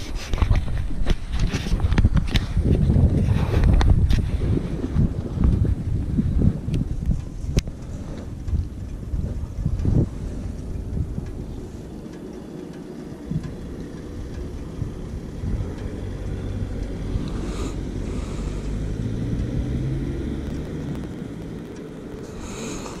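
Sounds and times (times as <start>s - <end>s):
motorcycle engine idling: 3.9s - 19.4s.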